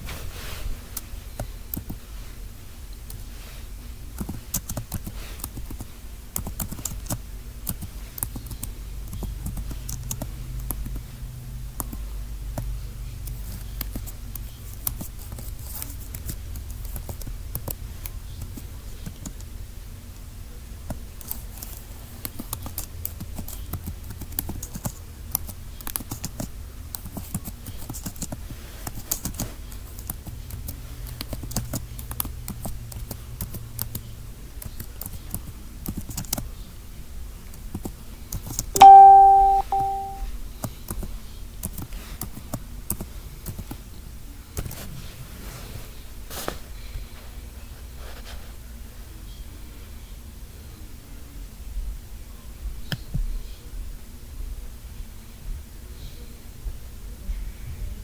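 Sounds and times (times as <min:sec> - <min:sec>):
low room hum: 0:00.0 - 0:58.0
bell-like chime: 0:38.8 - 0:40.2.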